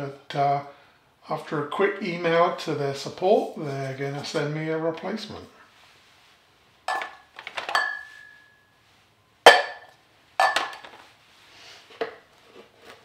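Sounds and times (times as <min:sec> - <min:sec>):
glassware clinking on table: 0:06.9 - 0:08.6, 0:09.5 - 0:10.8.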